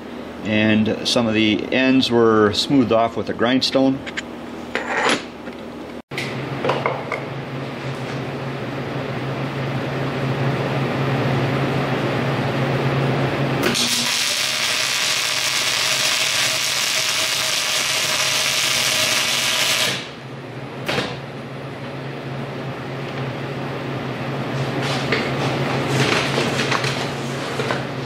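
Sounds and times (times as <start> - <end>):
welding arc crackling: 13.6 - 20.1.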